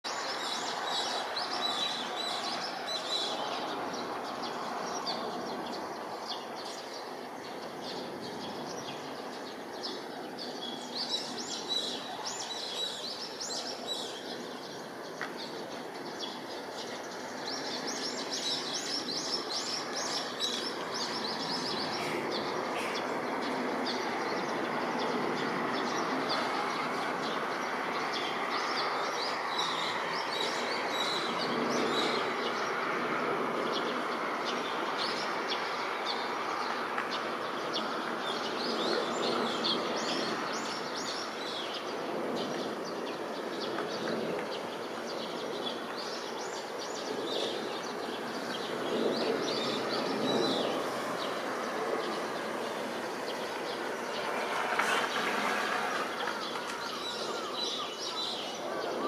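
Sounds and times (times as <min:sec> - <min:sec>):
small birds chirping: 0:00.1 - 0:59.0
distant jet rushing hum: 0:14.3 - 0:28.6, 0:47.8 - 0:57.6.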